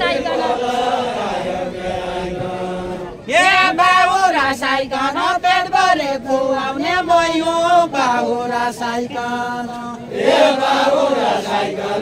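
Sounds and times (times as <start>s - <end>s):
group singing a chanted line: 0.0s - 12.0s.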